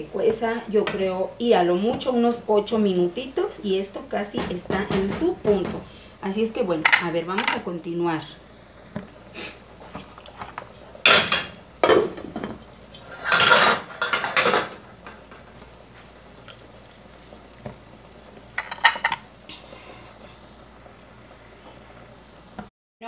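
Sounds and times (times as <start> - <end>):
pot lid clinking and scraping: 11.1 - 14.8.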